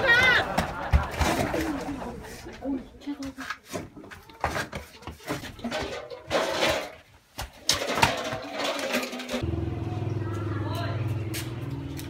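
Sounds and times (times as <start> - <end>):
metal basin knocks and clatters: 5.4 - 9.4.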